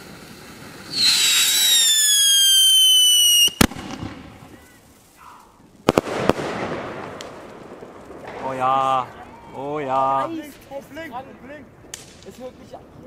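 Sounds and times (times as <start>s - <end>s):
firework whistle: 0.0s - 5.4s
firework bangs: 0.0s - 9.6s, 11.8s - 12.6s.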